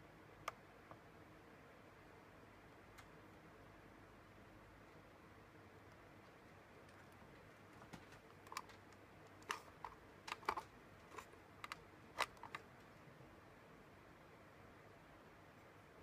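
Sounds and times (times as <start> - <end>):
light clicks and taps: 5.8 - 12.6.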